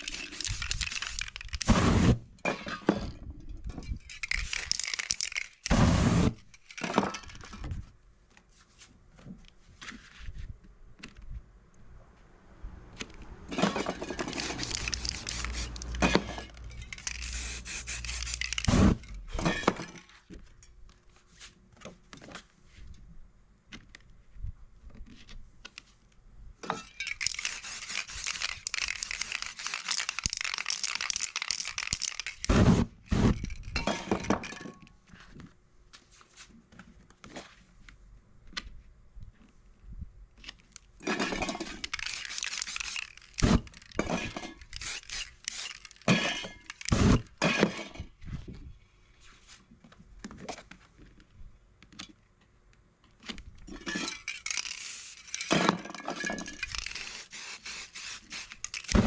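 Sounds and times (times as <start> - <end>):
spray paint can hissing: 0.0 - 2.2, 4.2 - 6.4, 14.2 - 16.1, 16.8 - 19.0, 27.1 - 33.6, 41.8 - 44.0, 44.6 - 47.2, 54.3 - 55.5, 56.4 - 59.0
cans knocking and clinking: 4.1 - 5.8, 27.0 - 32.6, 41.1 - 47.7.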